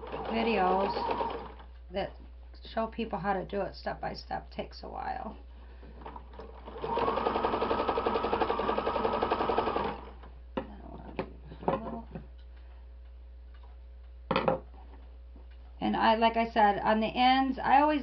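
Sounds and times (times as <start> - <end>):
sewing machine stitching: 0.0 - 1.6, 6.0 - 10.2.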